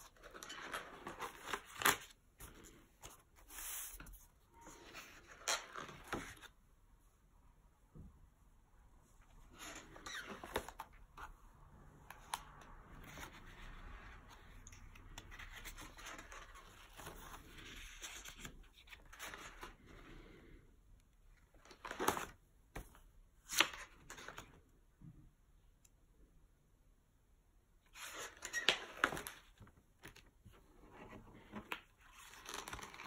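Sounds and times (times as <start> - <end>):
paper rustling and sliding: 0.0 - 6.5.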